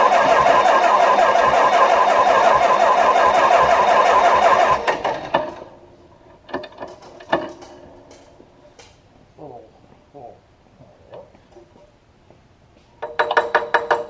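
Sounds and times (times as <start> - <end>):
engine cranking on starter: 0.0 - 5.8.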